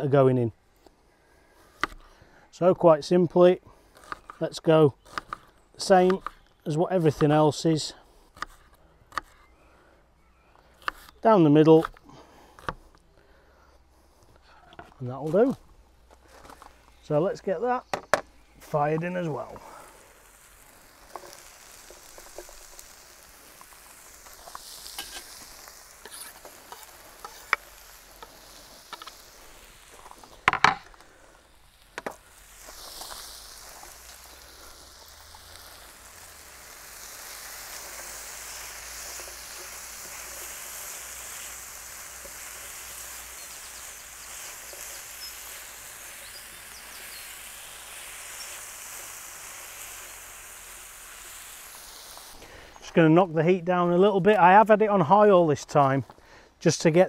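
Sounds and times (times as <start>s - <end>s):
chicken and onion sizzling in pan: 15.4s - 53.2s.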